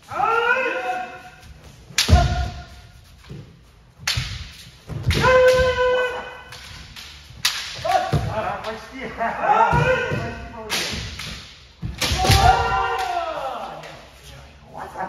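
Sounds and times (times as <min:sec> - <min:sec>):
people shouting: 0:00.0 - 0:01.4, 0:02.0 - 0:02.8, 0:05.1 - 0:06.7, 0:07.8 - 0:10.6, 0:11.9 - 0:14.0
bamboo swords striking: 0:01.6 - 0:08.9, 0:09.7 - 0:14.1.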